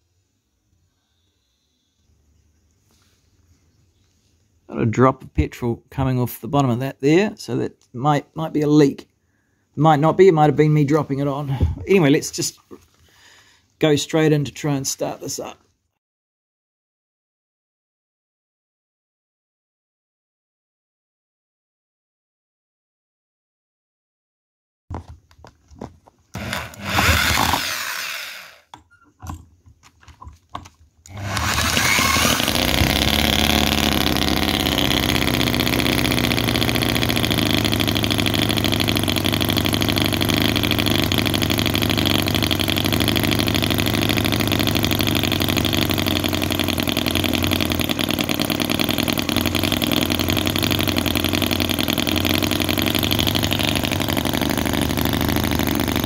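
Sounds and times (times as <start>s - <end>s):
small petrol engine running: 26.3s - 28.7s, 31.1s - 56.0s
model engine cranking: 26.3s - 29.4s, 31.0s - 56.0s.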